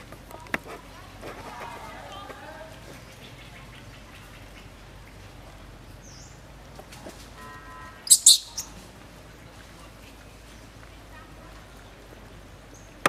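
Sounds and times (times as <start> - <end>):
faint steady background noise: 0.0 - 13.0
sharp high-pitched chirps: 8.1 - 8.8.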